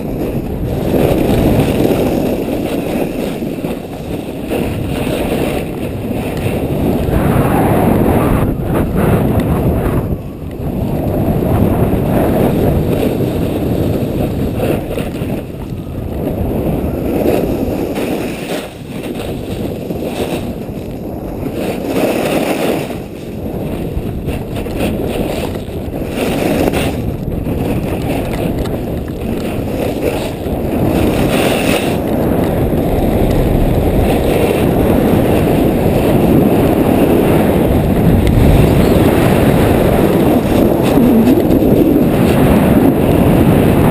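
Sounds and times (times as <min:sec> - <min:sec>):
snowboard scraping over snow: 0:00.0 - 0:43.9
wind buffeting microphone: 0:00.0 - 0:43.9.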